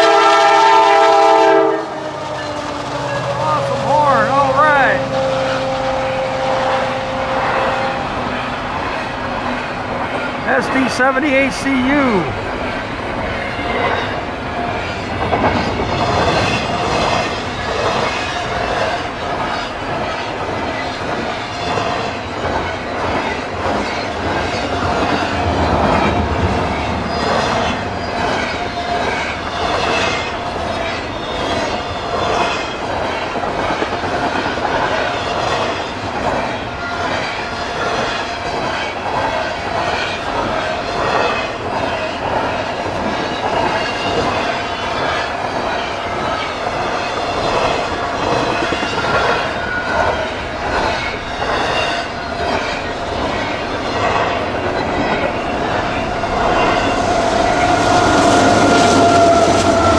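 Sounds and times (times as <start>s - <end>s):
train wheels rumbling on rails: 0.0s - 59.9s
wheels clacking over rail joints: 12.3s - 59.9s
ringing tone from wheels: 14.8s - 59.9s.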